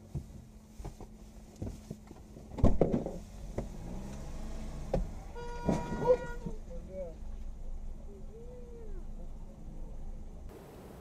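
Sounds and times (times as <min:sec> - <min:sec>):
knocks and thumps in car cabin: 0:00.0 - 0:03.8, 0:04.9 - 0:06.3.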